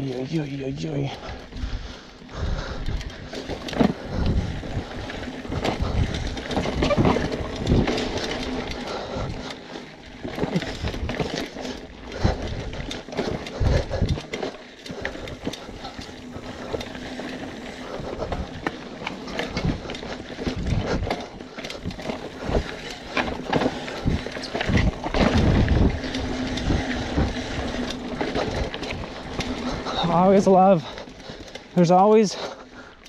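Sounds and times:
bike rattling over bumps: 0.0s - 33.0s
bike tyres rolling on dirt: 0.0s - 33.0s.

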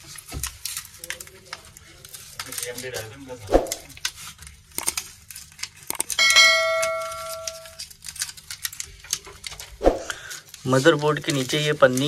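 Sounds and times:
bell-like chime: 6.2s - 7.8s.

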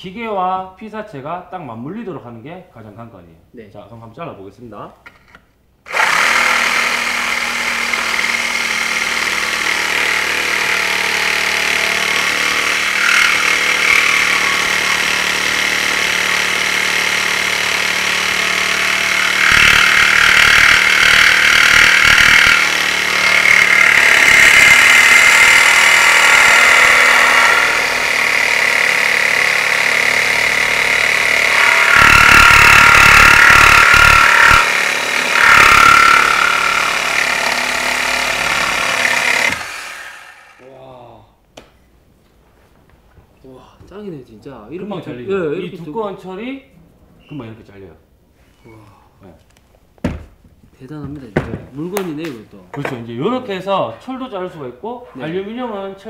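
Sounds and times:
reciprocating saw cutting steel: 5.9s - 40.6s.

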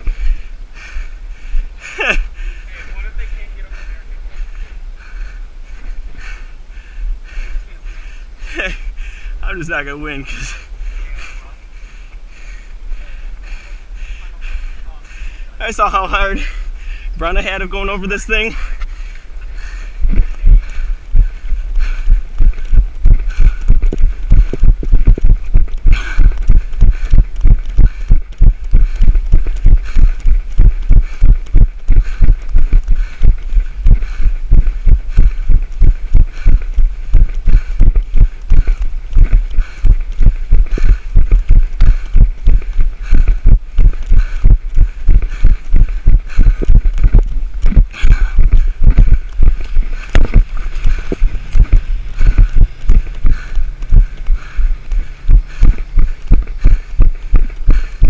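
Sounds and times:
wind and movement hiss: 0.0s - 39.1s, 44.6s - 58.0s
running footfall thumps: 19.6s - 58.0s.

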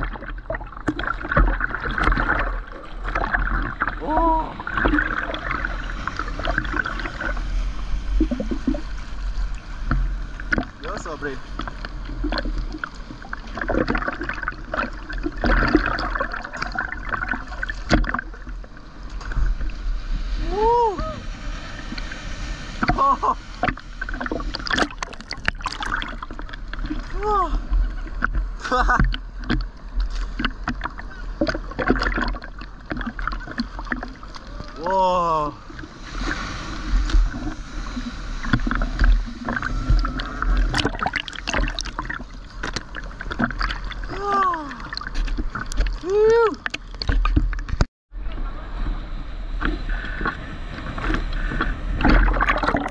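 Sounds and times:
small splashes: 0.0s - 20.6s, 21.8s - 47.8s, 51.4s - 52.9s
water sloshing and gurgling: 0.0s - 52.9s
water splashing against camera housing: 38.4s - 44.0s, 44.8s - 47.9s.

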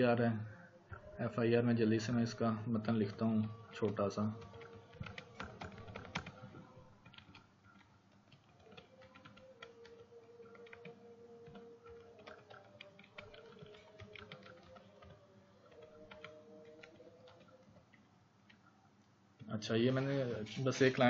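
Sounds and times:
keyboard typing: 2.8s - 18.7s.

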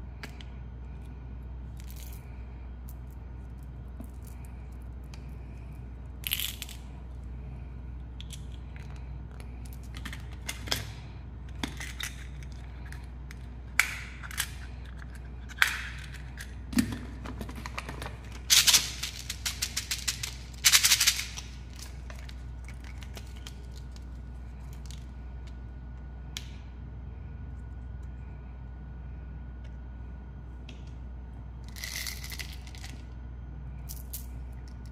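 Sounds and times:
hard candies clicking and rattling: 6.2s - 6.9s, 11.5s - 25.1s, 31.6s - 33.0s.

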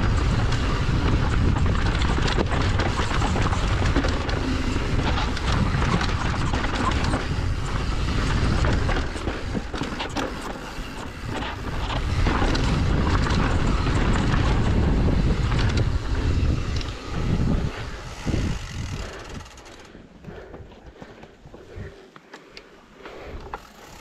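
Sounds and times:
wind rushing over microphone: 0.0s - 10.2s, 10.9s - 19.6s
bike clattering over bumps: 0.0s - 20.0s.

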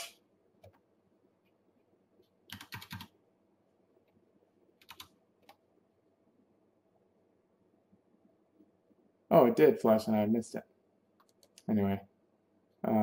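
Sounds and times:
computer keyboard clicking: 2.5s - 3.1s, 4.8s - 5.6s.

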